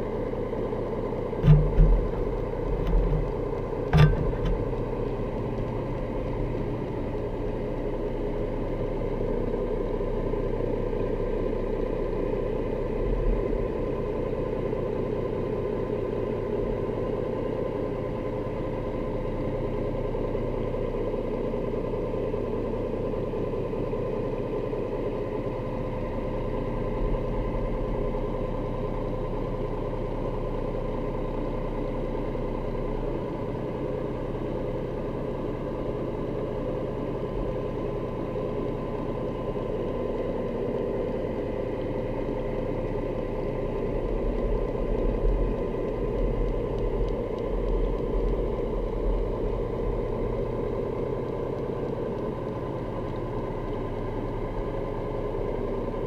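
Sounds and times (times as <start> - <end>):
boat motor hum underwater: 0.0 - 20.9, 23.7 - 56.0
dull knocks and bumps: 1.4 - 4.9.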